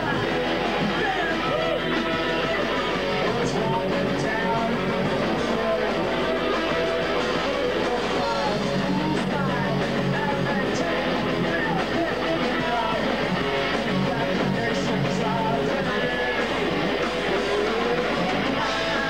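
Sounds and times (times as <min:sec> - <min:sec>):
rock band playing live: 0:00.0 - 0:19.0.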